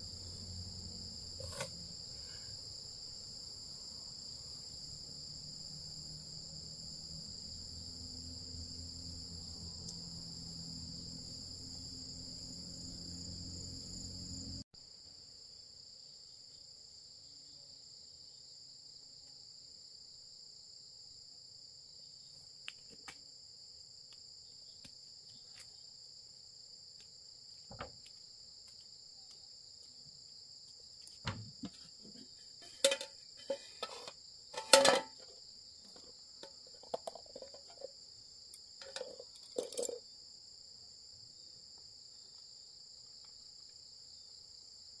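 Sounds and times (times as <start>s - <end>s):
insects trilling: 0.0s - 45.0s
metal pot and lid clanking: 32.5s - 35.3s, 38.8s - 40.0s.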